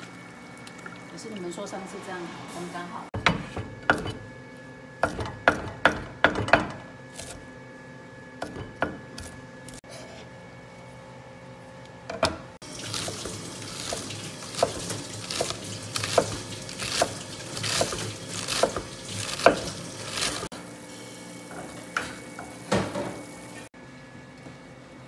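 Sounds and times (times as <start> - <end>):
cleaver shredding cabbage on board: 12.9 - 20.5.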